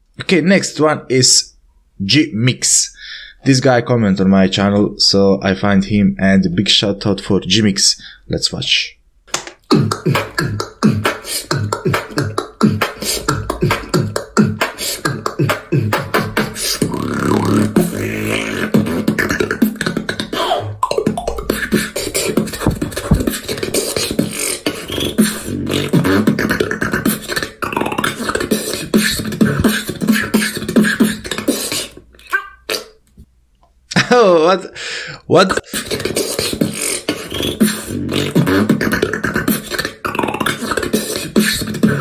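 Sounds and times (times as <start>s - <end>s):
beatboxing percussion: 9.4s - 33.0s, 35.4s - 42.0s
beatboxed bass note: 9.6s - 32.5s, 35.5s - 42.0s.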